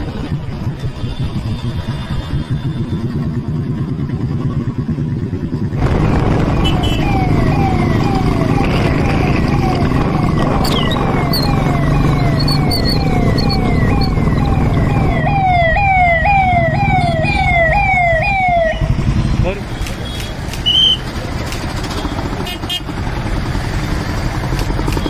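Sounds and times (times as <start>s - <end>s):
road and traffic noise: 0.0s - 25.0s
police siren: 5.6s - 21.1s.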